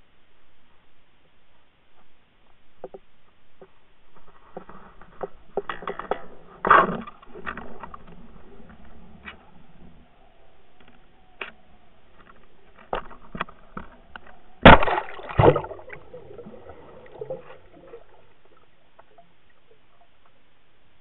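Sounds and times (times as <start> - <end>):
dull underwater hush: 0.0 - 21.0
water bubbling and gurgling: 7.1 - 20.2
camera rig splashing into water: 14.6 - 16.2.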